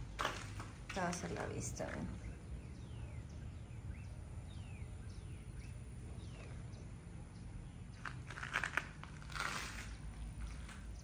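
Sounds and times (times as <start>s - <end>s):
low steady background noise: 0.0s - 11.0s.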